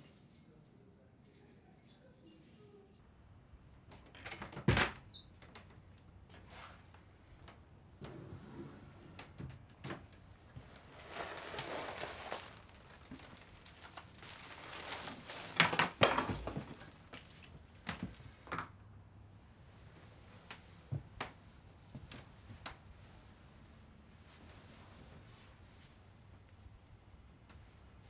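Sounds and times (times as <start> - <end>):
clothing rustle: 6.4 - 7.0, 10.2 - 18.2, 19.9 - 28.0.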